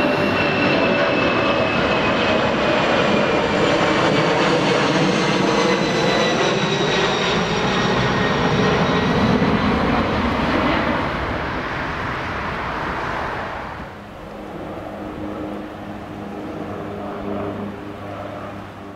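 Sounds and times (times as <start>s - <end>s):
jet engines roaring and whining: 0.0s - 18.9s.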